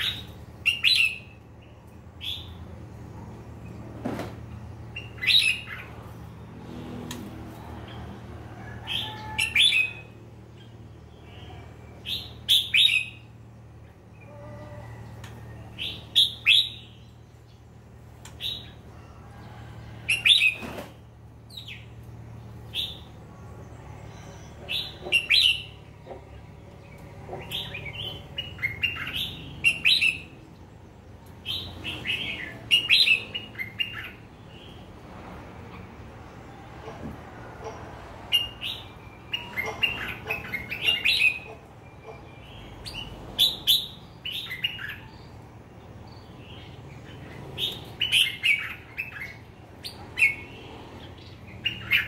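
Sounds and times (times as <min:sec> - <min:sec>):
birds chirping: 0:00.0 - 0:35.0, 0:35.7 - 0:52.0.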